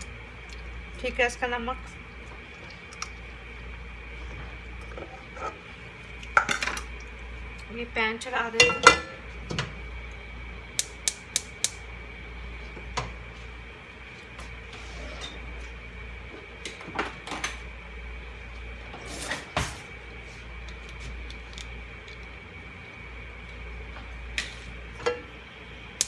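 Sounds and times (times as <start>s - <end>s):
gas stove igniter clicking: 10.8s - 11.8s.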